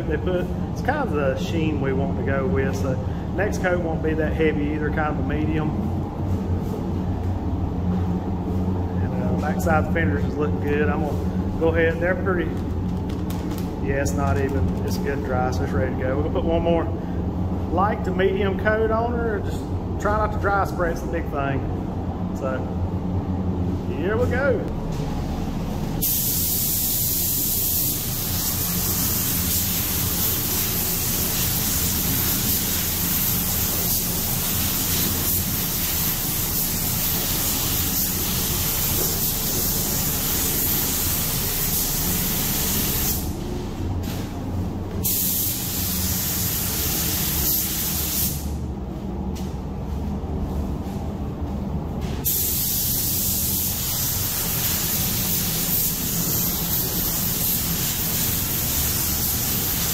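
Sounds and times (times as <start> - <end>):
paint spray gun hissing: 26.0 - 43.3, 45.0 - 48.6, 52.2 - 59.9.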